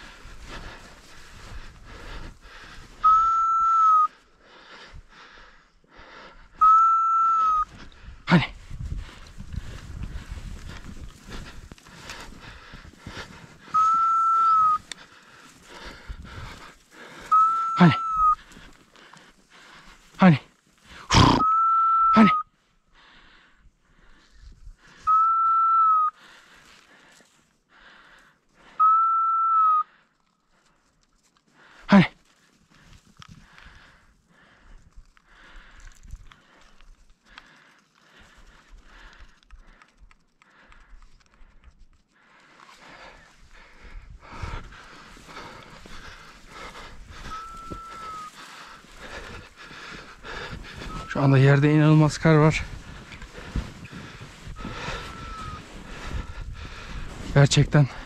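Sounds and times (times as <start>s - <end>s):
footsteps crunching in snow: 0.0s - 3.0s, 8.5s - 17.3s, 44.3s - 57.9s
dog whistle blasts: 3.0s - 4.1s, 6.6s - 7.7s, 13.8s - 14.8s, 17.3s - 18.4s, 21.3s - 22.4s, 25.1s - 26.1s, 28.8s - 29.9s.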